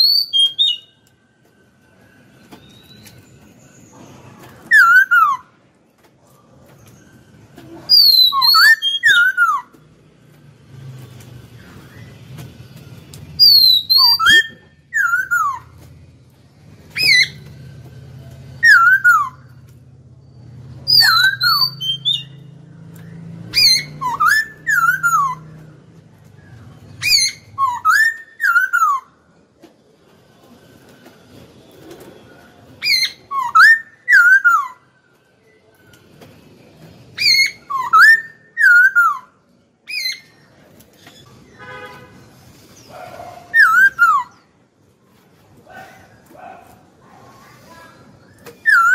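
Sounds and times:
bird singing whistled phrases: 0:00.0 - 0:01.0, 0:02.2 - 0:04.0, 0:04.6 - 0:05.6, 0:07.9 - 0:09.7, 0:13.4 - 0:15.8, 0:16.9 - 0:17.5, 0:18.6 - 0:19.6, 0:20.8 - 0:25.6, 0:26.5 - 0:29.2, 0:32.8 - 0:34.9, 0:37.2 - 0:40.6, 0:43.5 - 0:44.5, 0:48.2 - 0:48.9.

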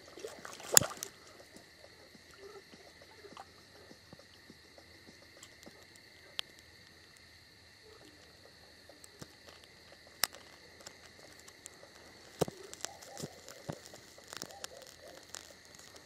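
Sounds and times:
campfire crackling and popping: 0:00.0 - 0:16.0
insect chirring: 0:00.0 - 0:16.0.

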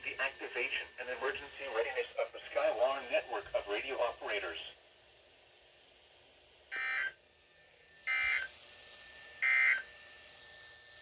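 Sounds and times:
two-tone warble data tones: 0:08.1 - 0:08.5.

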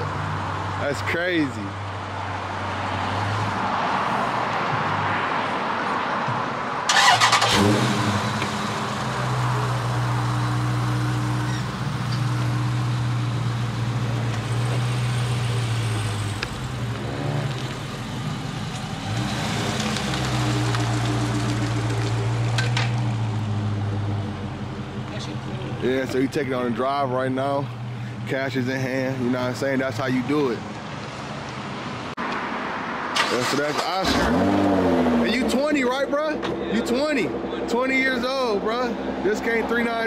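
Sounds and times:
car engine revving: 0:06.9 - 0:30.4, 0:33.0 - 0:40.0.

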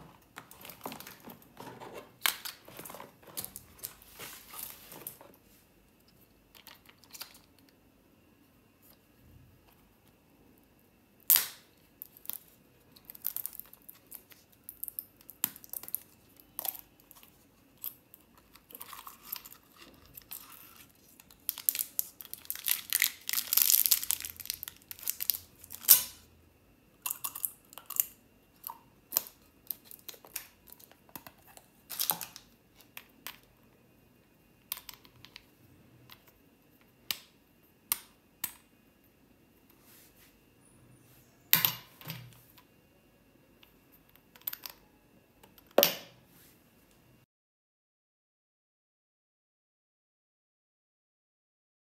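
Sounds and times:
plastic wrapper crinkling and tearing: 0:12.1 - 0:26.2.

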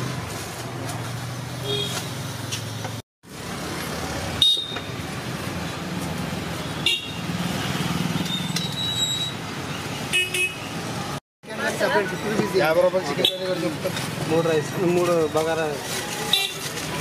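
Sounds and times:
street traffic: 0:00.0 - 0:17.0
vehicle horns: 0:01.6 - 0:02.2, 0:04.4 - 0:04.9, 0:06.6 - 0:07.6, 0:09.9 - 0:10.9, 0:16.0 - 0:17.0.

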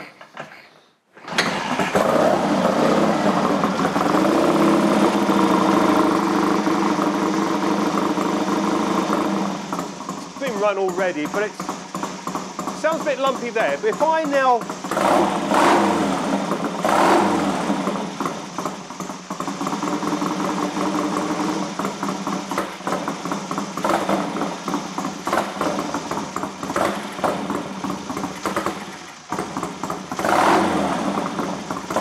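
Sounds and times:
engine throttle blips: 0:01.4 - 0:32.0
twin engine idling lumpily: 0:03.3 - 0:15.4, 0:17.8 - 0:30.2.

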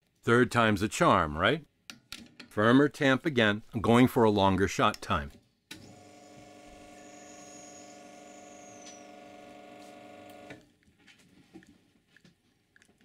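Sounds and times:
espresso machine pump humming: 0:05.8 - 0:10.6.

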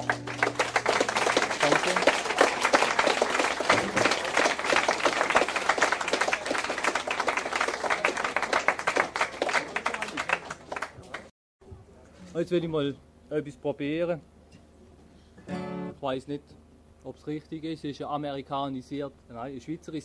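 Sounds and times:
audience applauding: 0:00.0 - 0:11.3.

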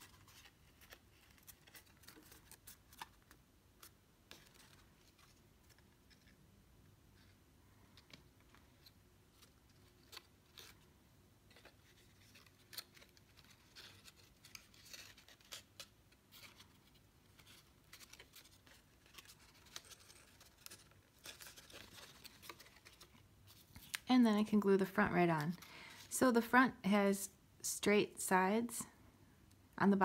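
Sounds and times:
cardstock rustling and clicking: 0:00.0 - 0:06.4, 0:11.5 - 0:24.1.

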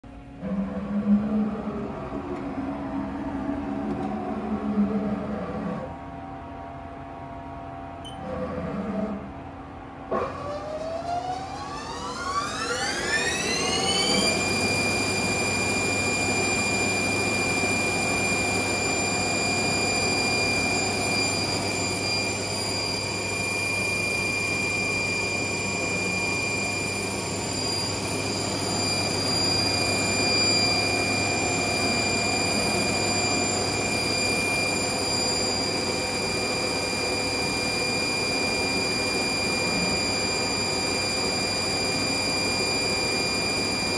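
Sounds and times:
lathe spindle whine: 0:10.1 - 0:43.9.

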